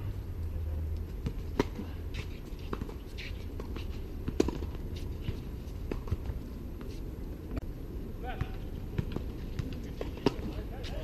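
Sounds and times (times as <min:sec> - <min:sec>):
tennis racket hitting ball: 0:01.2 - 0:01.9, 0:02.7 - 0:04.8.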